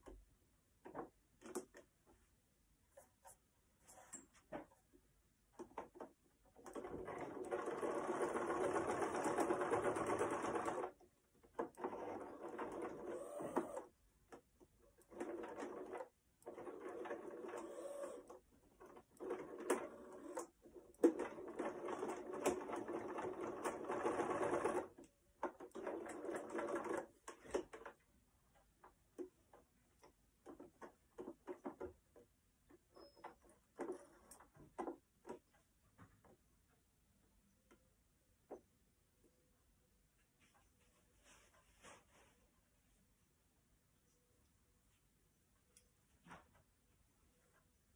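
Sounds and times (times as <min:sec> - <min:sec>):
electric sewing machine stitching: 0:06.7 - 0:11.0, 0:11.7 - 0:13.9, 0:15.1 - 0:25.0.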